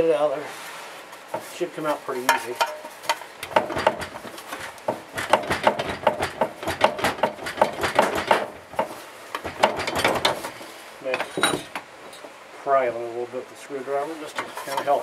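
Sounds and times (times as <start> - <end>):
metallic clunks and knocks: 2.3 - 12.4.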